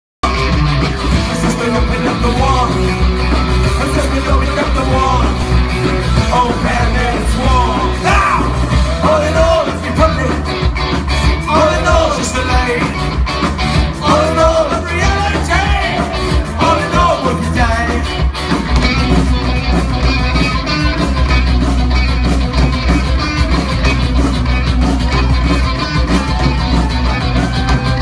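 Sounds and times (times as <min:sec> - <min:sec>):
ska band playing live: 0:00.2 - 0:28.0
person singing: 0:01.2 - 0:10.6, 0:11.2 - 0:13.0, 0:13.8 - 0:18.2.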